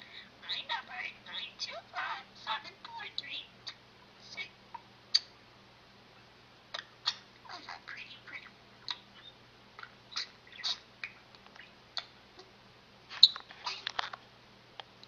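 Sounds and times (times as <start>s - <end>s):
faint steady hum: 0.0s - 15.0s
budgerigar chirping: 6.8s - 9.4s, 10.1s - 12.1s.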